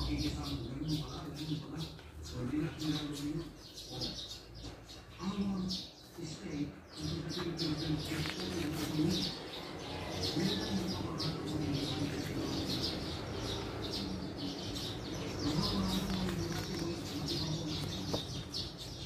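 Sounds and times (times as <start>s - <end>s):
small birds chirping: 0.0s - 19.0s.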